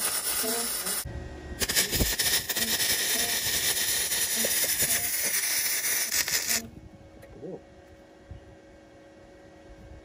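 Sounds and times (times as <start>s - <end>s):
welder arc crackling and hissing: 0.0s - 6.7s.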